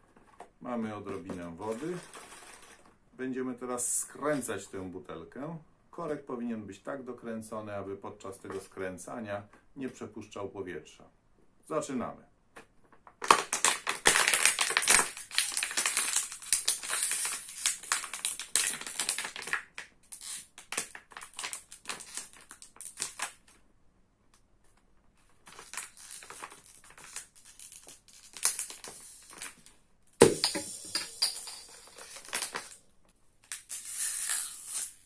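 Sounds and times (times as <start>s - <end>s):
plastic bottle crackling: 12.9s - 23.5s, 25.4s - 32.8s.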